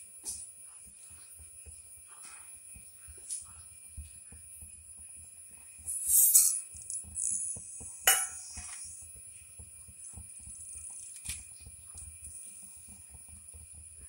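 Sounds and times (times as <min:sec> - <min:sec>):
seeds sizzling in hot oil: 0:00.0 - 0:14.0
metallic clink: 0:05.9 - 0:07.4.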